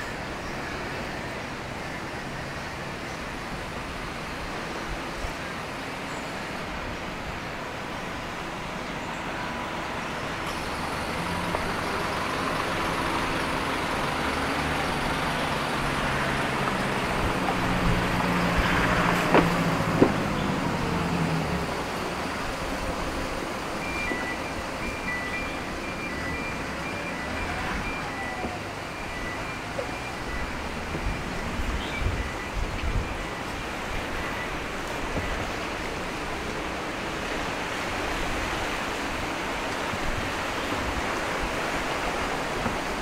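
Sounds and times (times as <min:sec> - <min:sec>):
vehicle engine passing by: 0:10.5 - 0:22.4.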